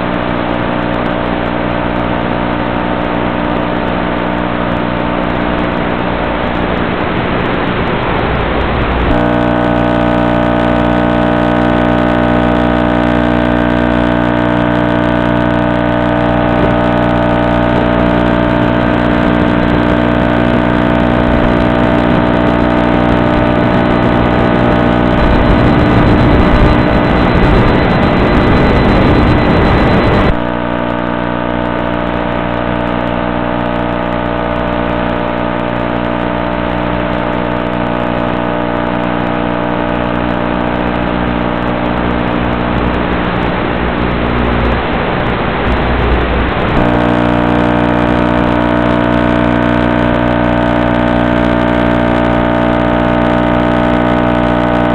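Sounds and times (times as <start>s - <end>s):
model plane motor droning: 9.1s - 30.3s.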